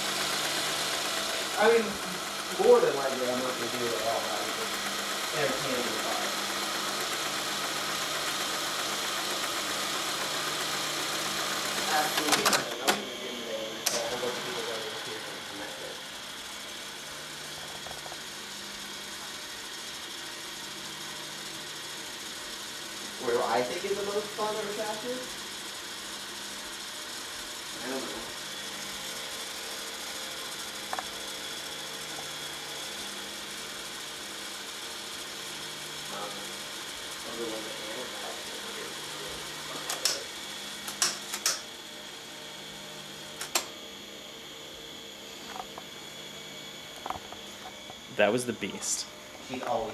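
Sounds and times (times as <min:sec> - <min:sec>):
cassette duplicator motor hum: 0:00.0 - 0:49.9
sharp mechanical clicks: 0:11.8 - 0:13.0, 0:39.9 - 0:40.2, 0:40.8 - 0:41.7, 0:43.4 - 0:43.7.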